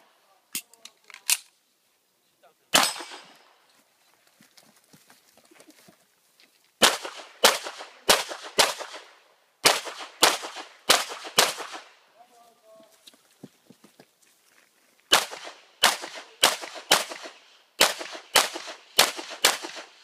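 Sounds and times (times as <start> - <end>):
pistol shots with echo: 2.7 - 3.4, 6.8 - 11.9, 15.1 - 20.0.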